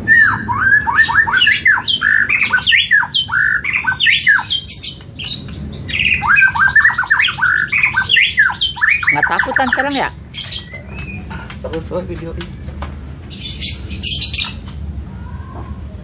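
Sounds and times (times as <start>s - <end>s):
bird singing whistled song: 0.0s - 11.3s.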